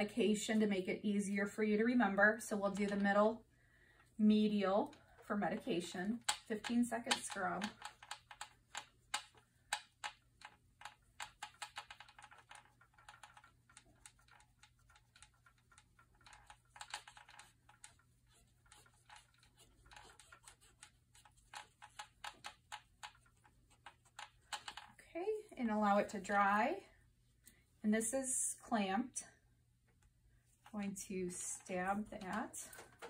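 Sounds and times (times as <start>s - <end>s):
swab scrubbing plastic hub: 5.8s - 24.9s.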